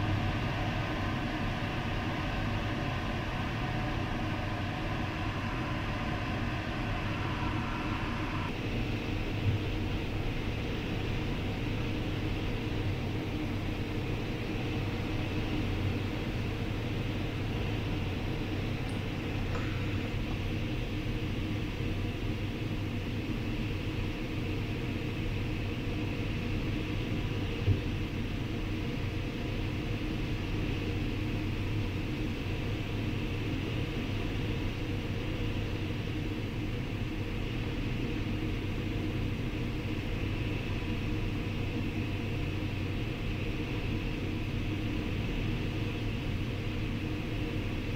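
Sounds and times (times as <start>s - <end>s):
airflow rushing: 0.0s - 8.6s
low rumble: 0.0s - 8.6s.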